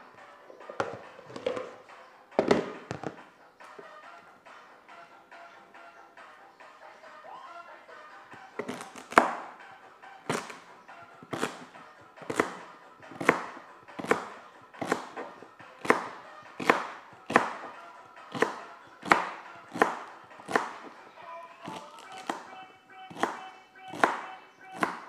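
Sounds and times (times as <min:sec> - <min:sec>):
knife chopping celery on board: 0:08.6 - 0:09.5, 0:10.3 - 0:10.6, 0:11.2 - 0:20.9, 0:21.6 - 0:22.5, 0:23.1 - 0:25.0.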